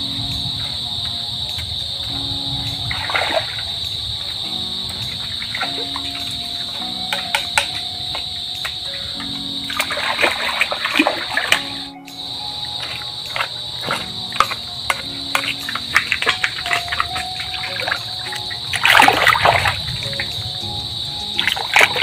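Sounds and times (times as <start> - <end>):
background music with held notes: 0.0 - 22.0
high insect drone: 0.0 - 22.0
water splashing and sloshing: 0.0 - 22.0.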